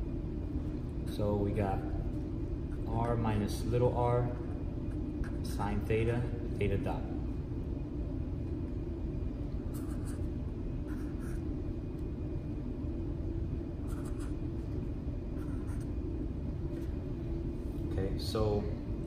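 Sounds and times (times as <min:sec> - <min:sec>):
low hum: 0:00.0 - 0:19.0
marker scratching on paper: 0:09.7 - 0:10.3, 0:10.9 - 0:11.4, 0:13.8 - 0:14.4, 0:15.4 - 0:16.0.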